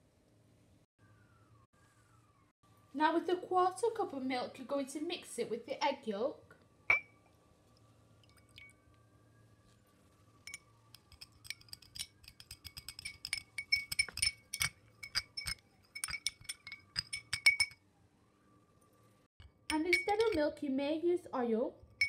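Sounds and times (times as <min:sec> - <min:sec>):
metal spoon clinking against glass bowl: 0:06.9 - 0:07.1, 0:10.5 - 0:17.8, 0:19.7 - 0:20.4.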